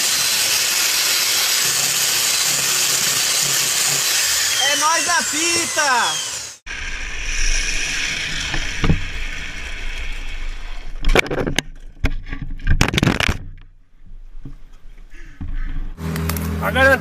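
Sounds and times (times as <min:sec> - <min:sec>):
crash knocks and scraping: 0:08.4 - 0:14.7.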